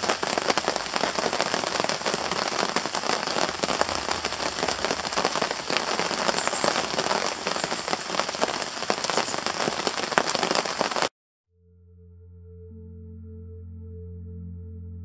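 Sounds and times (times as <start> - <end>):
rain pattering on a tarp: 0.0 - 11.1.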